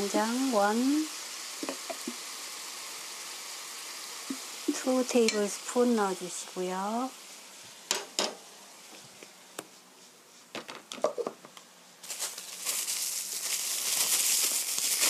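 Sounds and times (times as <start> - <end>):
chicken sizzling in a pan: 0.0 - 9.4, 12.0 - 15.0.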